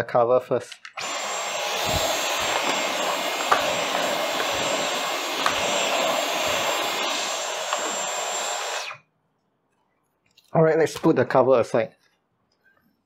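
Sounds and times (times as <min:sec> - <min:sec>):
vacuum cleaner running with whine: 0:01.0 - 0:09.0.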